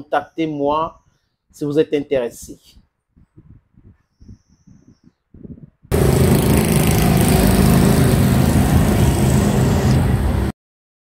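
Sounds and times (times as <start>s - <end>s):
motorcycle engine running: 5.9s - 10.2s.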